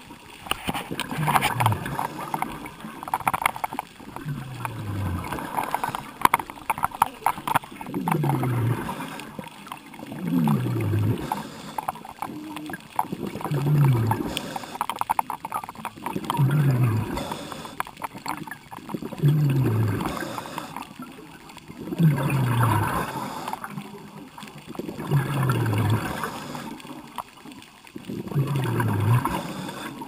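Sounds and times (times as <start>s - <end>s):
exhaled bubbles gurgling: 0.0s - 30.0s
diver breathing through regulator: 10.4s - 12.6s, 13.4s - 15.1s, 16.6s - 18.1s, 19.4s - 21.1s, 22.1s - 23.8s, 25.2s - 27.0s, 28.5s - 30.0s.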